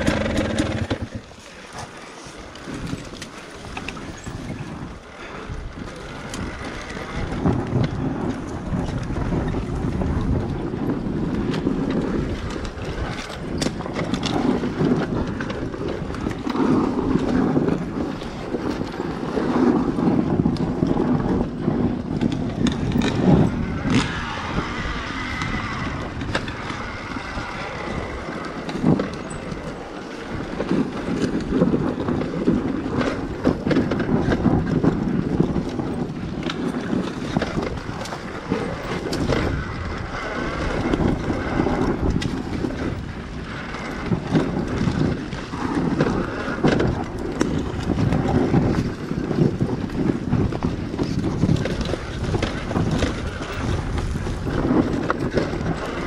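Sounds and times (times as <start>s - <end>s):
bike knocks and rattles: 0.0s - 1.2s, 20.0s - 25.6s
dirt bike engine: 0.0s - 1.3s, 22.6s - 28.4s.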